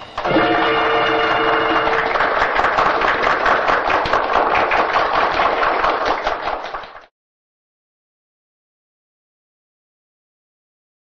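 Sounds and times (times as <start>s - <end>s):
band holding a chord: 0.0s - 2.8s
audience applauding: 0.2s - 7.1s.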